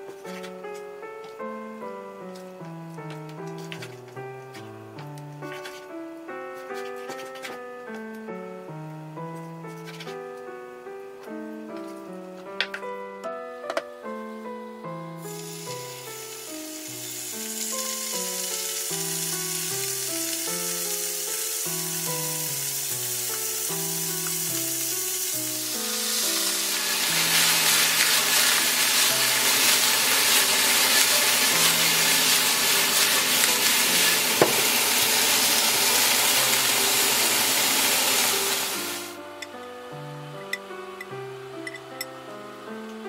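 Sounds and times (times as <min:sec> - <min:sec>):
background music melody: 0:00.0 - 0:43.0
meat sizzling in a frying pan: 0:15.2 - 0:39.2.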